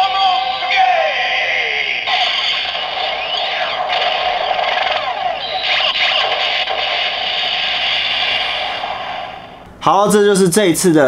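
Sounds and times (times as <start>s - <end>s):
toy belt electronic transformation effect: 2.1s - 9.0s.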